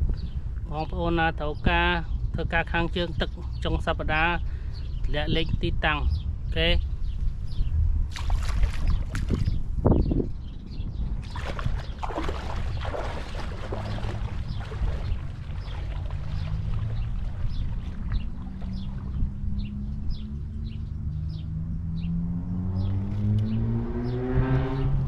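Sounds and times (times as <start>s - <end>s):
wading through shallow water: 8.1s - 9.8s, 11.2s - 21.1s
distant motorboat engine droning: 12.1s - 25.0s.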